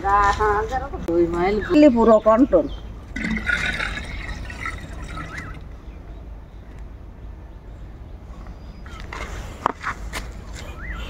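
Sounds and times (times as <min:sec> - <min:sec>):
liquid trickling into clay pot: 0:03.0 - 0:05.7.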